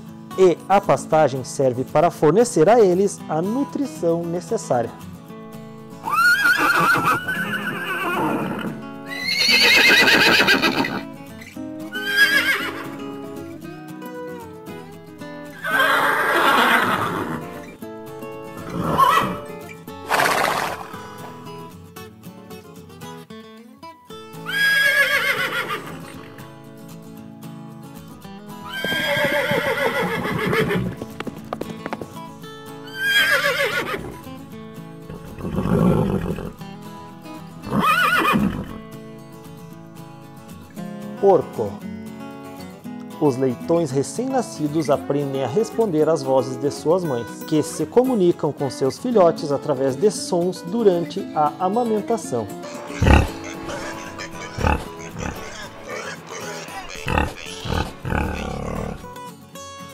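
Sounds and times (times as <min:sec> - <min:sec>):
background music: 0:00.0 - 0:59.9
horses whinnying: 0:06.0 - 0:11.1, 0:11.9 - 0:13.0, 0:15.5 - 0:17.7, 0:18.6 - 0:21.2, 0:24.4 - 0:26.4, 0:28.6 - 0:32.0, 0:32.8 - 0:34.3, 0:35.1 - 0:36.6, 0:37.6 - 0:38.8, 0:52.8 - 0:59.1.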